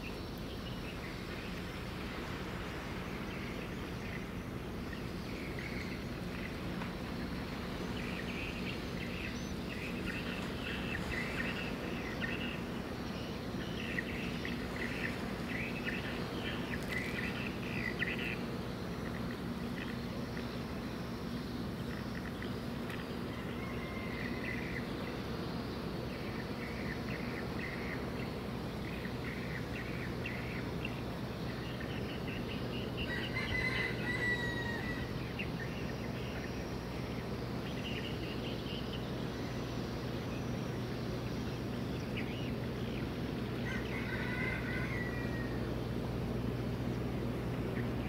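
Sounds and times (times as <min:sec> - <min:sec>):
birds calling: 0:00.0 - 0:48.0
rooster crowing: 0:23.3 - 0:24.7, 0:33.0 - 0:35.2, 0:43.6 - 0:45.7.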